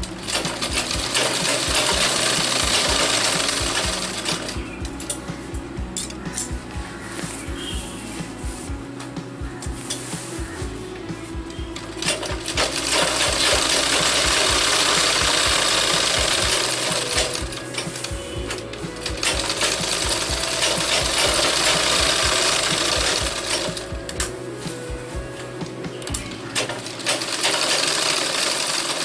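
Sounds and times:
sewing machine stitching: 0.0 - 5.2, 11.8 - 24.2, 26.0 - 29.0.

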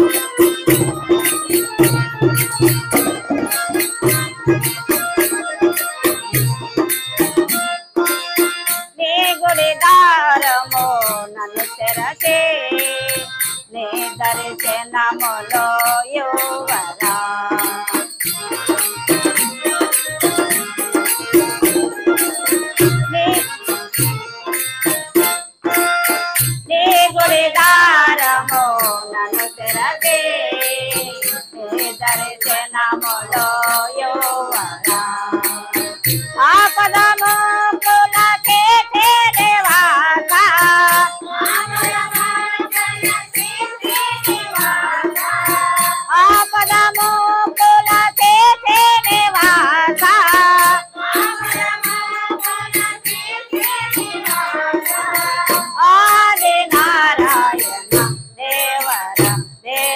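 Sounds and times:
dholak drum beats: 0.0 - 59.9
hand cymbals jingling: 0.0 - 59.9
person singing: 8.9 - 18.1, 21.3 - 24.1, 26.7 - 59.9.

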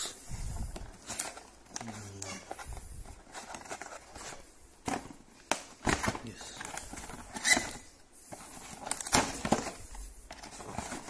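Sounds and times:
cardboard rustling and scraping: 0.0 - 11.0.

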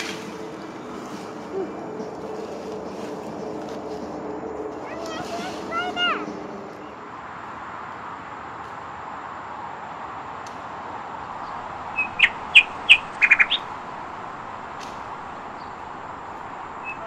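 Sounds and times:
bird chirping: 11.3 - 13.8, 15.5 - 17.0.

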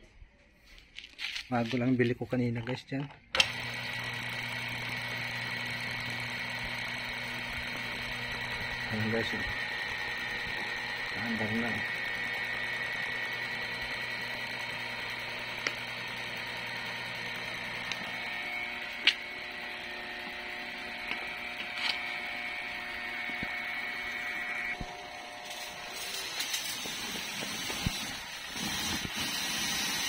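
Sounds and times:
pressure washer pump motor: 3.3 - 30.0.

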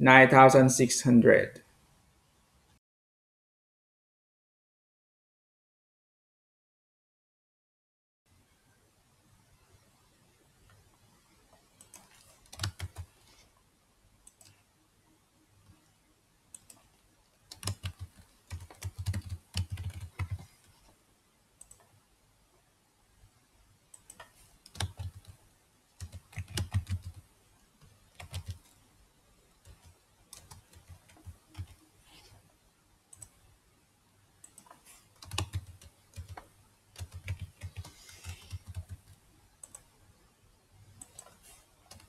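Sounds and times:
computer keyboard typing: 11.8 - 13.3, 14.2 - 14.6, 16.5 - 21.0, 21.6 - 21.9, 23.9 - 25.4, 26.0 - 28.8, 29.6 - 32.4, 33.1 - 33.4, 34.4 - 39.9, 41.0 - 42.0.

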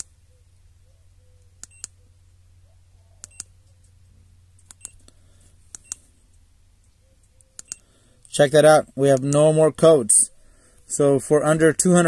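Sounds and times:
faint low hum: 0.0 - 12.0
keypad buttons clicking: 1.6 - 2.0, 3.2 - 3.5, 5.7 - 6.0, 7.4 - 7.8.

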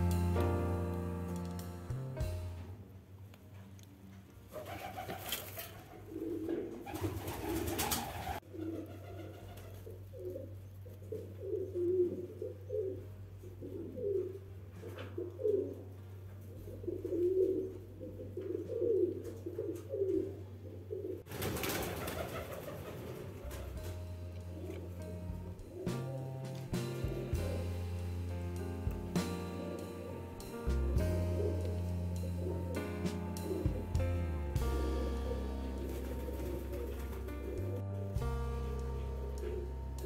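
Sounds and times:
low hum: 0.0 - 4.5, 23.2 - 40.0
pigeon cooing: 4.5 - 15.9, 16.5 - 26.1, 30.9 - 34.0, 34.6 - 37.8.

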